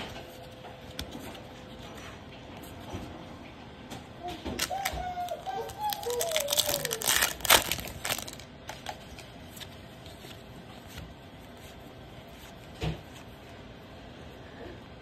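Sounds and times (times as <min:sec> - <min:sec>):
cards being handled: 0:00.0 - 0:03.1, 0:04.5 - 0:13.6
plastic wrapper crinkling: 0:04.6 - 0:10.9.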